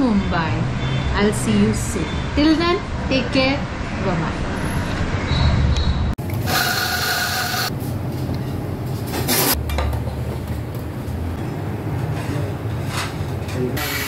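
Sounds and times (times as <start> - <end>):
coffee grinder running: 6.4 - 7.7.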